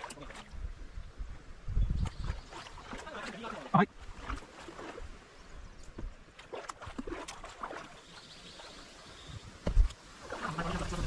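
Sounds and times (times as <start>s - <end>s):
knocks and splashes: 0.0s - 0.6s, 2.0s - 5.2s, 5.8s - 8.7s, 9.6s - 11.0s
paddle strokes in water: 2.1s - 5.2s, 5.9s - 9.0s.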